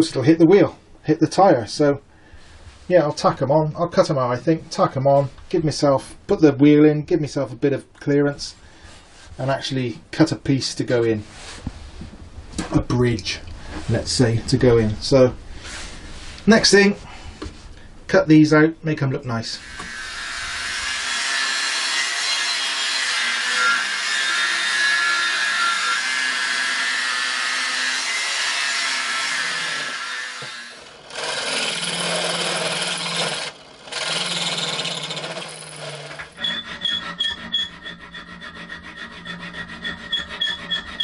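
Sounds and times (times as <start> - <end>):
angle grinder cutting steel: 19.6 - 41.0
hand file rasping steel: 21.0 - 41.0
power tool motor bursts: 29.5 - 36.4.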